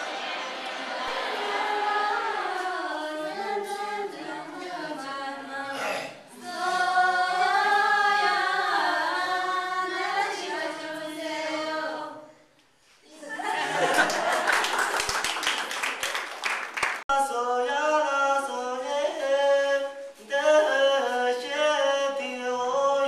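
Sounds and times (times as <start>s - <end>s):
women singing without instruments: 1.4s - 12.4s.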